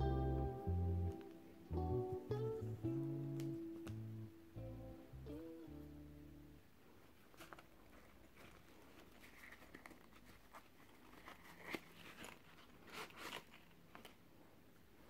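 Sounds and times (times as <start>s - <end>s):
packaging rustling: 7.3s - 14.2s.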